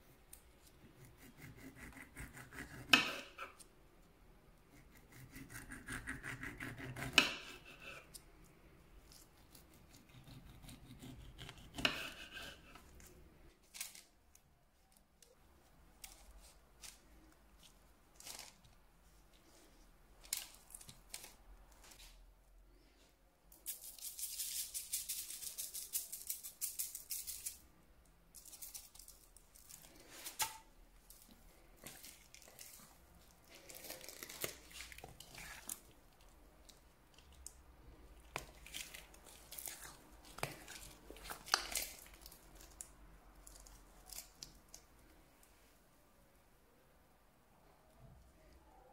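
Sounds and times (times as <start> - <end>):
sugar sprinkling hiss: 23.6 - 27.6.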